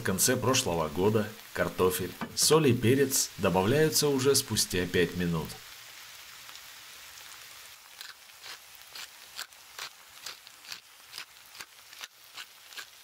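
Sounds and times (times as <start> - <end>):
food sizzling in a skillet: 0.0 - 13.0
pops and crackles of frying: 0.2 - 2.8, 5.4 - 13.0.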